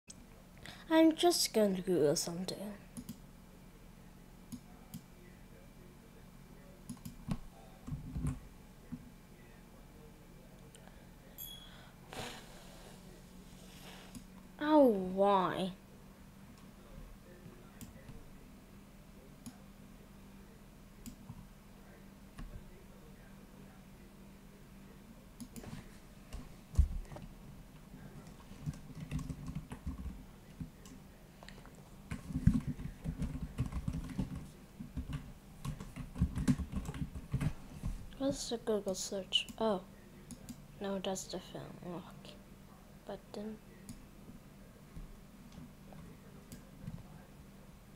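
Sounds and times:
computer mouse clicking: 6.9s - 8.4s
typing on computer keyboard: 28.6s - 30.2s, 32.1s - 37.5s.

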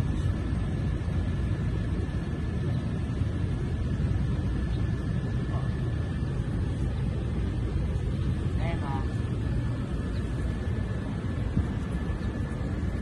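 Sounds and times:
faint high whine: 0.0s - 13.0s
low outdoor rumble: 0.0s - 13.0s.

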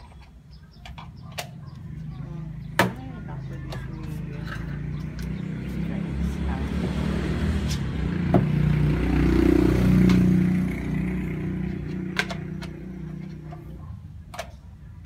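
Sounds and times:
vehicle engine passing by: 1.5s - 13.9s.

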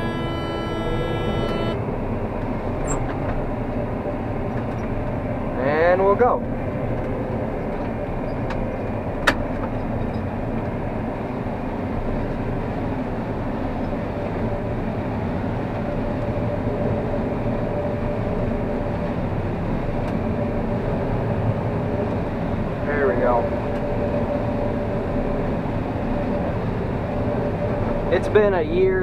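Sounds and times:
combine harvester droning: 0.0s - 2.3s.

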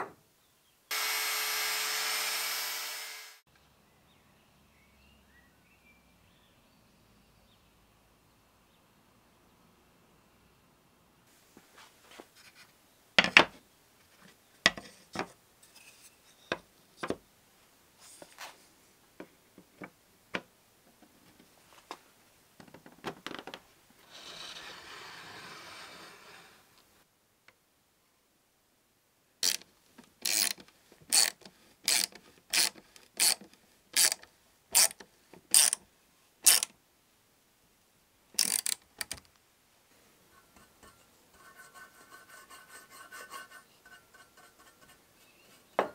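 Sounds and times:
ratcheting screwdriver clicking: 34.8s - 35.8s, 36.5s - 36.7s, 38.4s - 39.2s
wood rubbing: 40.4s - 45.9s.

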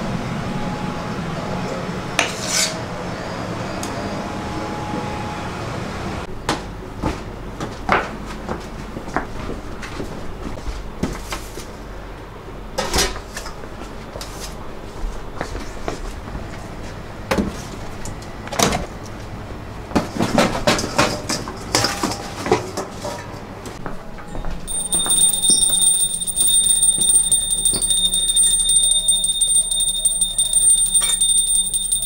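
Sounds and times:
hand bell ringing fast: 24.7s - 32.0s.

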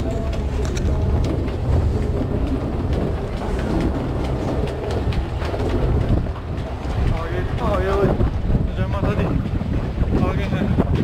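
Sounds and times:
escalator running: 0.0s - 9.6s
escalator clicks and clatters: 0.0s - 11.0s.

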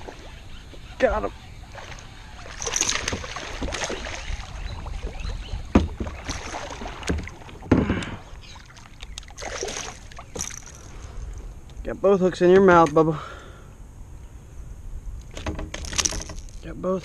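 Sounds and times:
water sloshing: 0.0s - 11.8s
sharp knocks: 5.7s - 6.4s, 15.3s - 16.5s
fish splashing at surface: 9.3s - 10.9s.

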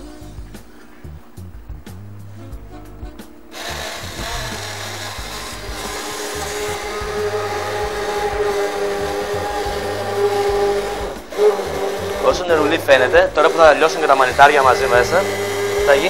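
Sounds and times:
background music with bass line: 0.0s - 16.0s
stick blender whining: 3.5s - 16.0s.

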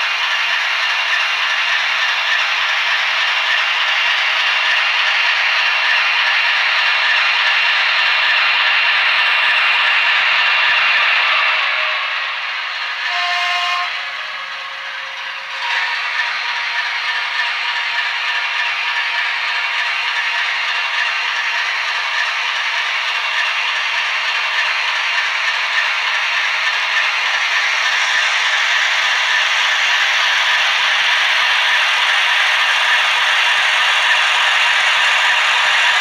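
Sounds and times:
model locomotive running sound: 0.0s - 36.0s
two-tone locomotive horn: 11.5s - 12.2s, 13.0s - 16.1s.

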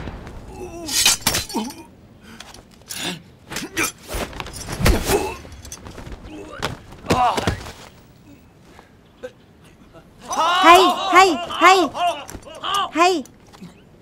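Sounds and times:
fighters grunting: 6.2s - 7.7s, 9.9s - 13.0s.

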